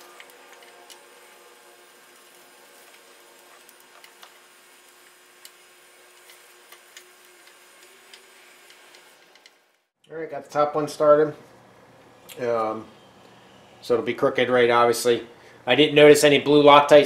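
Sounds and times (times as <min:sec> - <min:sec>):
faint steady hum: 0:09.4 - 0:17.0.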